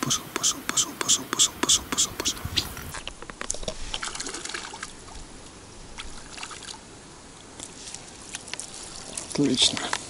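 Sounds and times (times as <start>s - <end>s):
fish splashing in water: 3.9s - 5.1s.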